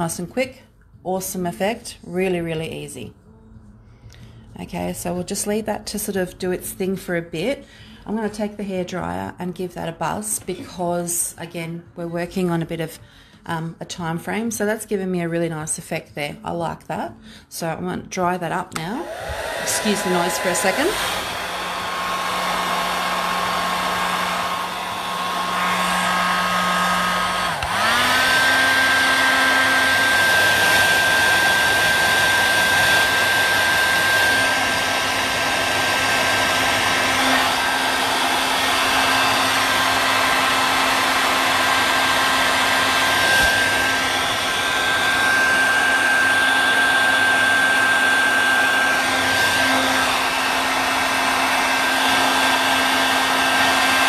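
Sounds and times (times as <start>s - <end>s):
hair dryer running: 18.5s - 54.0s.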